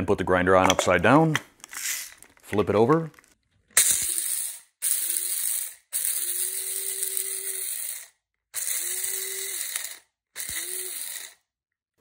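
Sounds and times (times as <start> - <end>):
peppercorns rattling and cracking: 1.6 - 3.4
spice grinder motor whine: 3.8 - 11.4.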